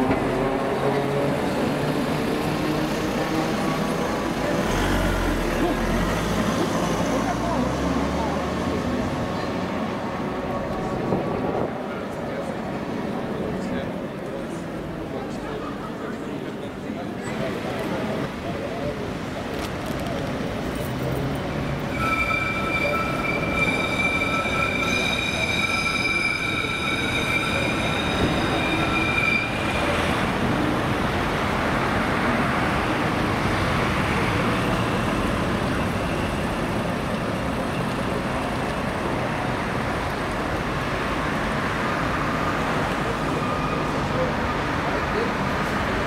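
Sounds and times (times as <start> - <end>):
city traffic: 0.0 - 46.0
tram rolling: 0.0 - 46.0
tram wheels squealing on rails: 21.6 - 39.9, 41.2 - 46.0.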